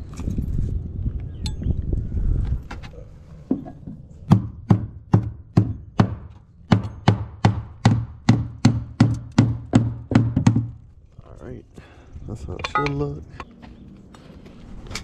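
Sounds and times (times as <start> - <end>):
hammer nailing on a roof: 4.3 - 10.8.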